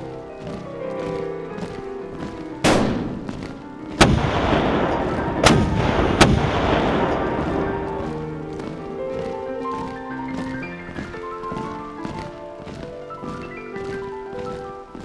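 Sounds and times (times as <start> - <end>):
quiet background music: 0.0 - 15.0
gunfire blasts with rumbling echo: 2.6 - 8.4.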